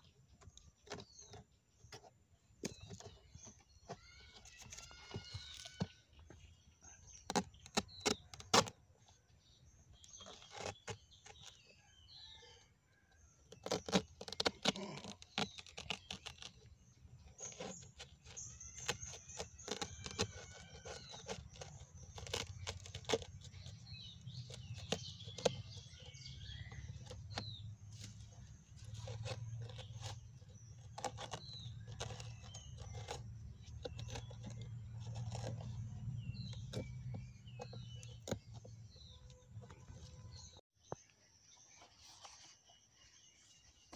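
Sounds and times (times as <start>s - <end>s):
birds chirping: 0.0s - 12.7s, 13.6s - 43.9s
knife cutting plant stem: 7.0s - 8.8s, 13.5s - 40.4s.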